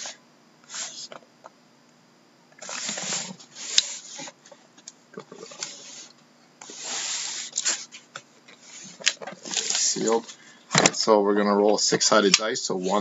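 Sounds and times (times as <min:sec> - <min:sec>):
cardboard scraping rustles: 0:02.6 - 0:04.6, 0:05.3 - 0:10.4.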